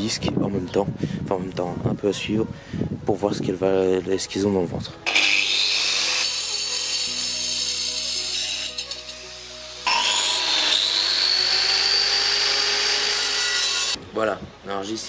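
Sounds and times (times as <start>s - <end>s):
background music: 0.0s - 15.0s
angle grinder cutting concrete: 5.1s - 14.0s.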